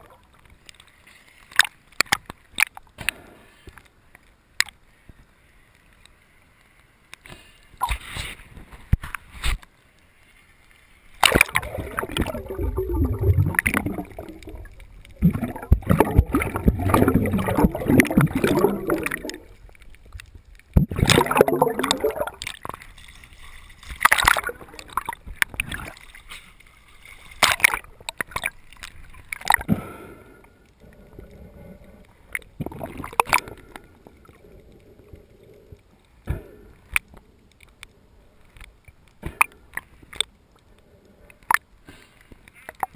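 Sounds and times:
sharp clicks and splashes: 0.0s - 35.2s, 35.8s - 42.9s
water gurgling and sloshing: 7.8s - 41.7s.

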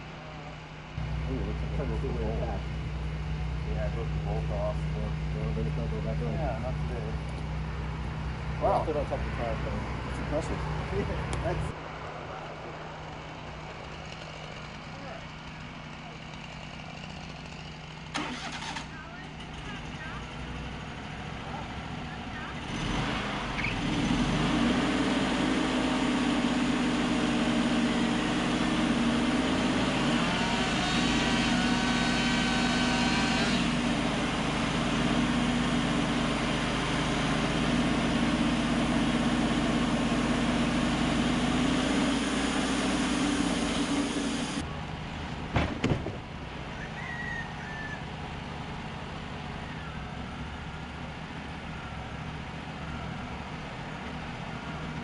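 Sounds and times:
band sawmill cutting log: 22.7s - 44.6s.

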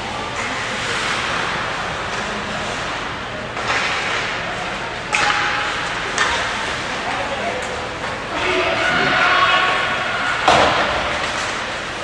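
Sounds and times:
crowd noise: 0.0s - 12.0s
hockey stick hitting puck: 5.1s - 6.5s, 10.4s - 11.9s.

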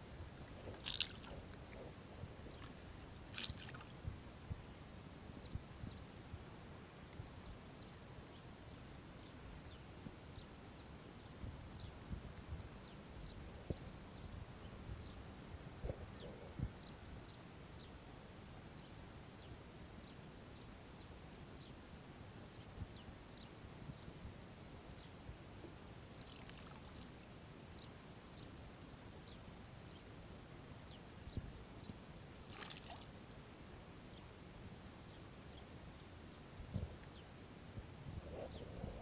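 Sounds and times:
ripples lapping at lake edge: 0.0s - 5.3s, 25.7s - 27.5s, 31.9s - 33.9s
water rushes: 0.6s - 1.8s, 2.6s - 4.1s, 32.4s - 33.3s.

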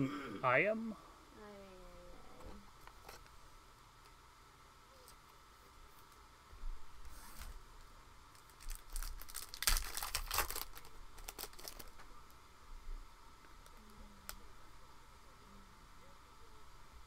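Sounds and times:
foil wrapper tearing and crinkling: 8.4s - 12.0s.

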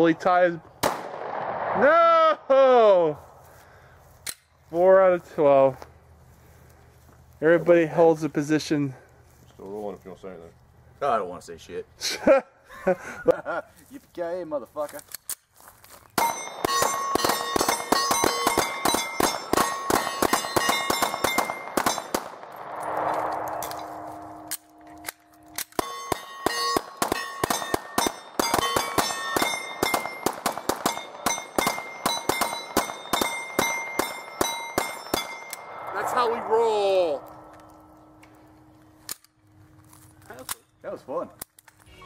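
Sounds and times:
metallic ringing of steel targets: 16.2s - 22.3s, 23.6s - 38.4s
pistols firing rapidly: 16.2s - 22.4s, 25.8s - 35.4s.

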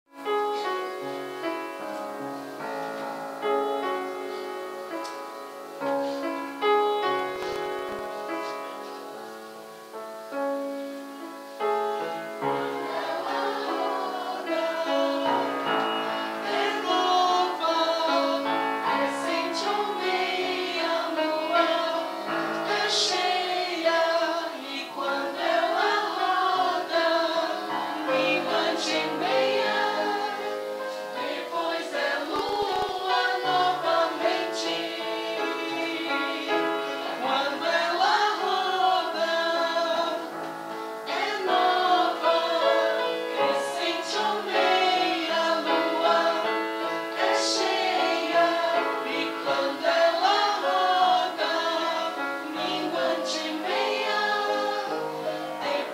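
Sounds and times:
mixed choir singing: 11.7s - 55.9s.

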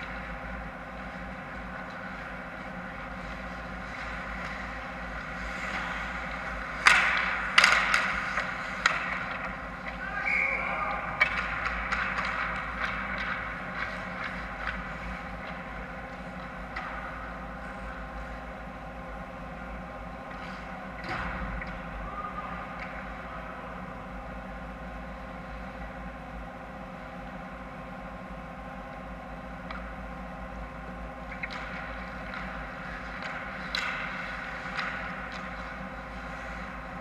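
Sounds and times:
hockey sticks and puck clacking: 0.0s - 18.5s, 20.2s - 23.5s, 29.6s - 30.6s, 31.2s - 37.0s
rink steady hum: 0.0s - 37.0s.

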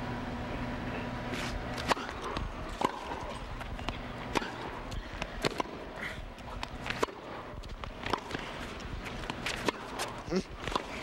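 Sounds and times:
tennis ball hits and bounces: 1.7s - 5.9s, 6.6s - 11.0s.

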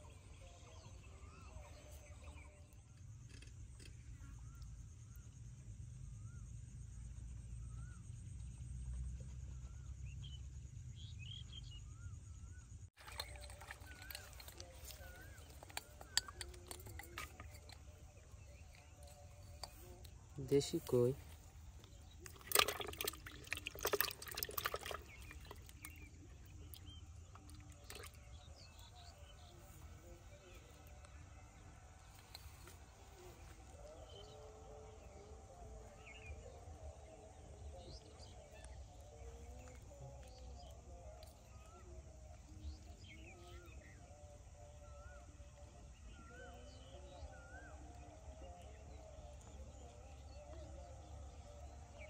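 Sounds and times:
birds chirping: 0.0s - 52.0s
fish splashing in a bucket: 13.0s - 20.1s, 20.9s - 29.5s.

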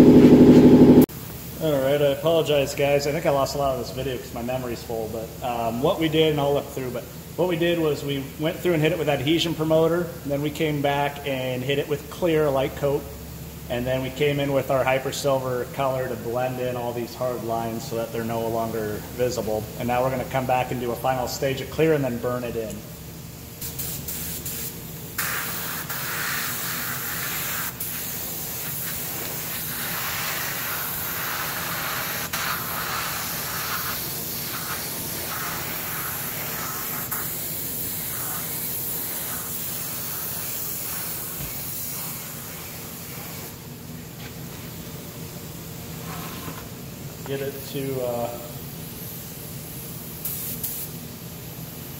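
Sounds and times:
spray gun hissing: 23.6s - 43.6s, 48.4s - 51.0s.

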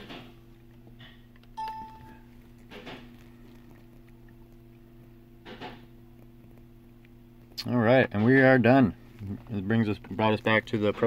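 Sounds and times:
steady low hum: 0.0s - 11.0s
short electronic beep: 1.6s - 2.2s.

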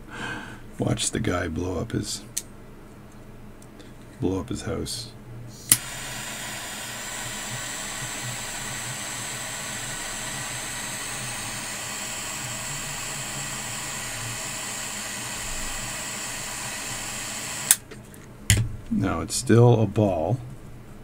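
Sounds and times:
butane torch hissing: 5.6s - 17.9s.

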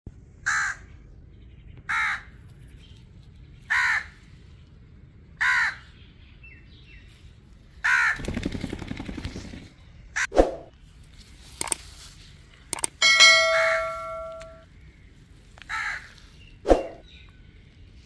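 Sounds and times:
rustling noise: 10.8s - 12.8s.

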